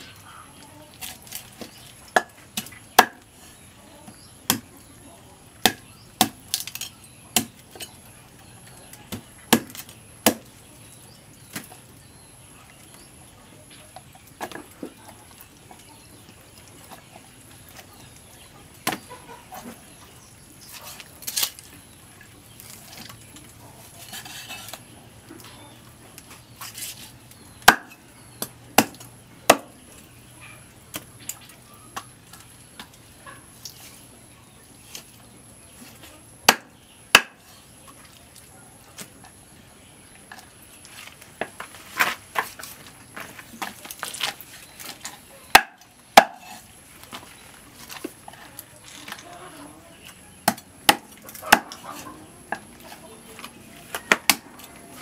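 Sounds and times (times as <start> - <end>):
cleaver chopping on wood: 2.2 - 3.2, 5.6 - 6.7, 9.1 - 10.5, 27.6 - 29.7, 36.5 - 37.4, 45.5 - 46.6, 50.4 - 51.8, 54.0 - 54.4.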